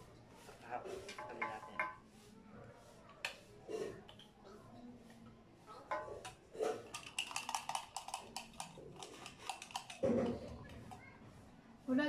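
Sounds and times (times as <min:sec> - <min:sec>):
candies rattling in plastic tube: 0:06.8 - 0:10.6.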